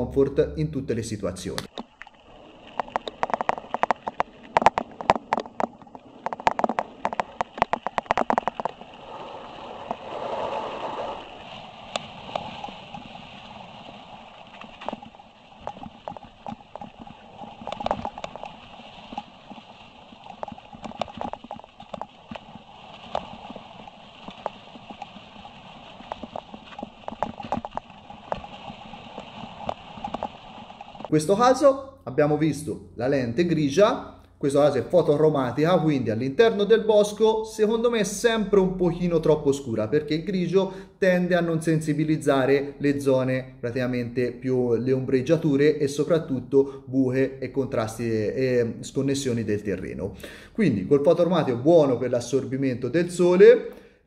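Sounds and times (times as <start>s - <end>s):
bike rattling over bumps: 2.7s - 31.1s.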